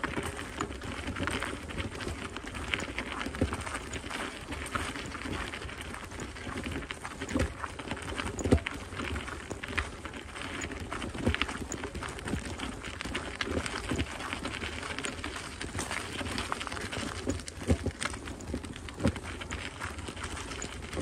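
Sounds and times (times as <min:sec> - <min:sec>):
footsteps on gravel: 0:00.0 - 0:21.0.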